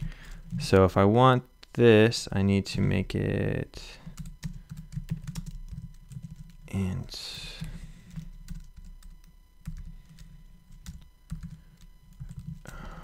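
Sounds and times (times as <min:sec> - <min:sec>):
typing on computer keyboard: 0:04.2 - 0:06.6, 0:08.1 - 0:12.6.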